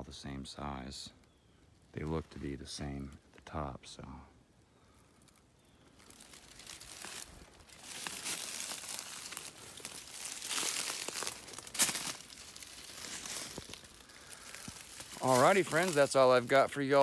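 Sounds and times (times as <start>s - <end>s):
brushing through undergrowth: 5.2s - 17.0s
footsteps crunching through leaves: 5.2s - 17.0s.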